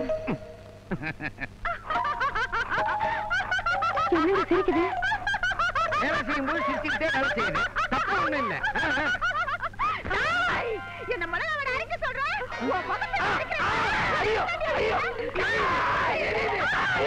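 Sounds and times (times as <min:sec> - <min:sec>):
snickering and chuckling laughter: 0:00.9 - 0:10.1.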